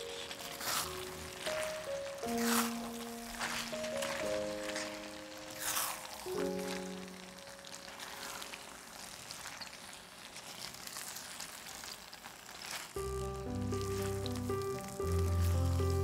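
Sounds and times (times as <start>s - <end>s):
background music: 0.0s - 8.8s, 13.0s - 16.0s
food sizzling in frying pan: 0.0s - 16.0s.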